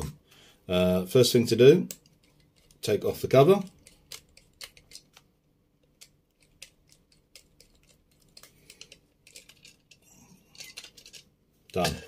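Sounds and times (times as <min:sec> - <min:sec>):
screwdriver bit clicking: 0:03.7 - 0:05.2.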